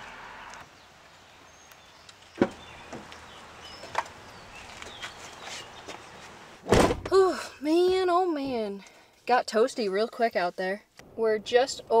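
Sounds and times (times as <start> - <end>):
faint birdsong: 0.0 - 6.6
truck door knocks and clunks: 6.6 - 7.2.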